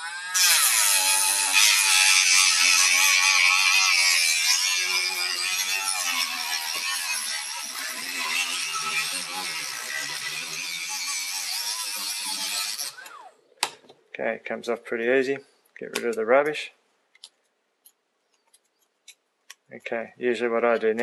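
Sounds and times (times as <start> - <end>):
rotary tool cutting disc whining: 0.0 - 13.3.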